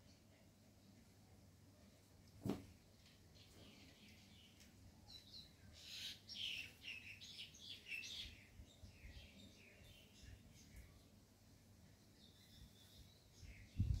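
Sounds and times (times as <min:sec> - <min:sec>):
faint bird chirping: 0:03.0 - 0:14.0.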